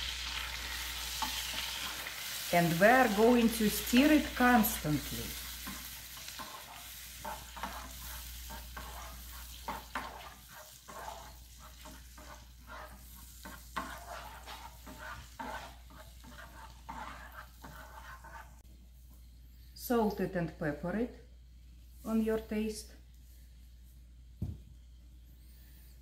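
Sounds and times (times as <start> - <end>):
light sizzle from pan: 0.0 - 20.4
spatula scraping a frying pan: 0.2 - 18.6.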